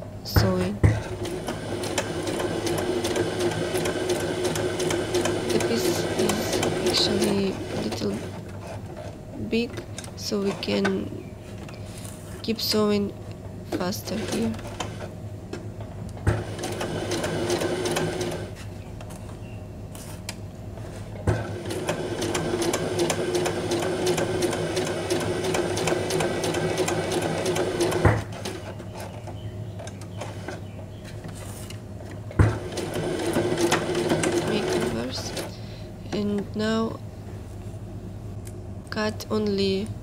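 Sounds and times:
sewing machine stitching: 1.0 - 9.1, 13.7 - 15.1, 16.3 - 18.6, 21.3 - 28.6, 32.4 - 35.6.

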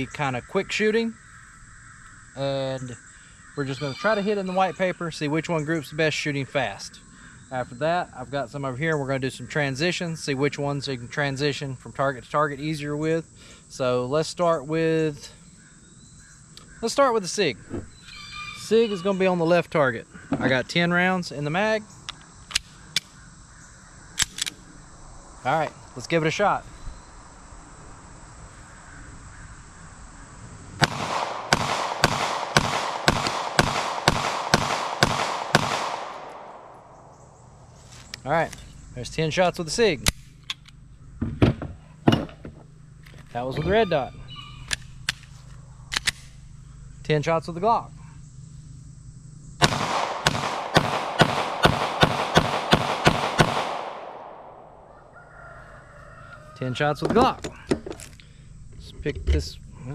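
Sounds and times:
rapid pistol shots with echo: 30.8 - 36.8, 49.6 - 54.6.

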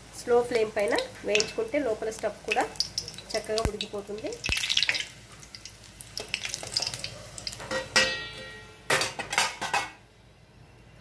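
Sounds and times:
faint oil sizzling: 0.0 - 8.7
metal clank on steel plate: 7.6 - 10.0.

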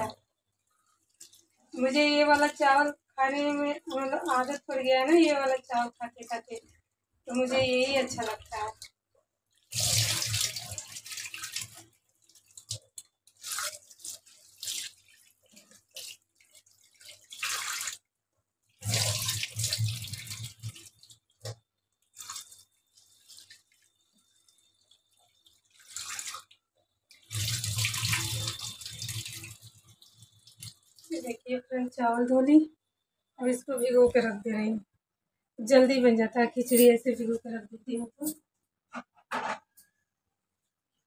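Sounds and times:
water pouring into steel sink: 0.0 - 31.5
water dripping: 0.0 - 32.3
tap water splashing into bowl: 18.8 - 21.6.

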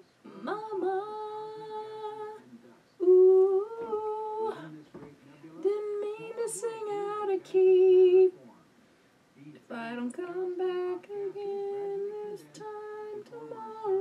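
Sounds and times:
woman singing wordless notes: 0.2 - 2.4, 3.0 - 4.7, 5.6 - 8.3, 9.7 - 14.0.

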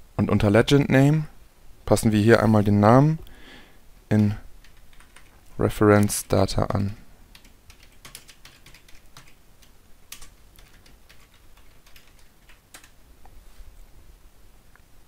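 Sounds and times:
computer keyboard typing: 4.2 - 5.4, 6.0 - 13.0.

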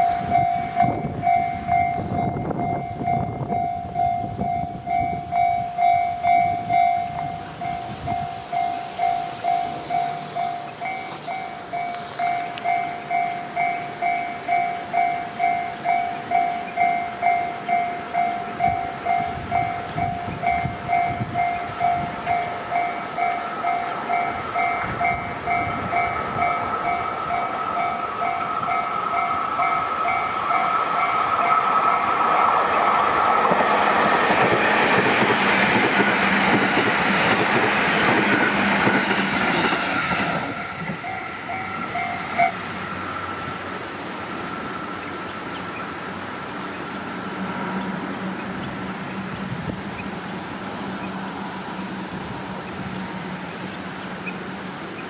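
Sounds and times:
level crossing bell ringing: 0.0 - 32.4, 41.0 - 42.6
train rail noise: 0.0 - 55.0.

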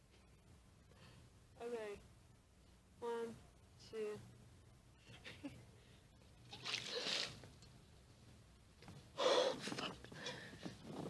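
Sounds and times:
ice water splashing: 6.5 - 7.4.

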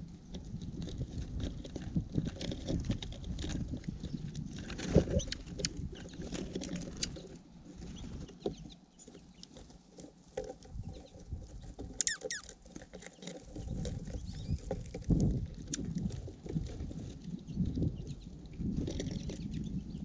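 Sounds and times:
birds pecking seed: 0.0 - 20.0
high bird chirps: 12.0 - 12.4.

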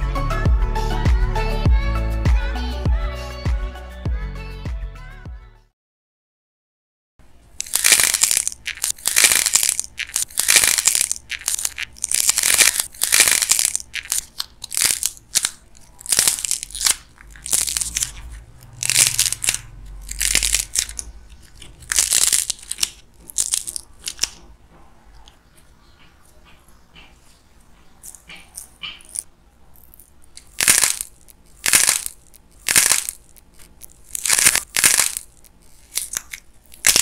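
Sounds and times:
dried clay crackling: 7.5 - 37.0.

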